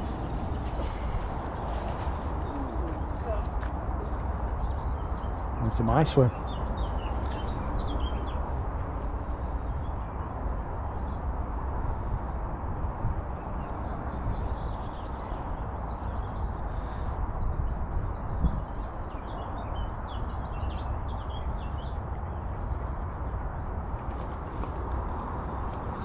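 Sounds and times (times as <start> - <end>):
small birds chirping: 0.0 - 10.4
wind rumble on microphone: 0.0 - 26.0.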